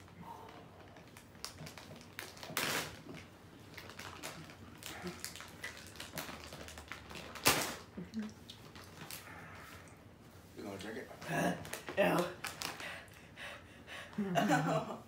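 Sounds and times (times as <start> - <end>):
small clicks and rustles: 0.5 - 7.5.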